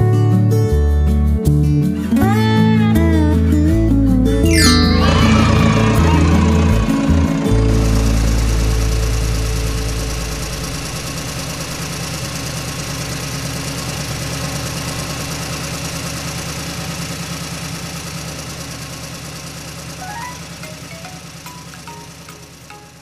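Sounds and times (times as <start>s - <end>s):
backhoe engine chugging: 5.0s - 23.0s.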